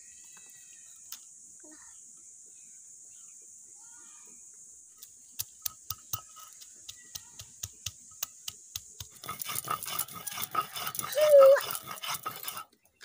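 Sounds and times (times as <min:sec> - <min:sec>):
stone pestle pounding garlic: 0:05.6 - 0:12.6.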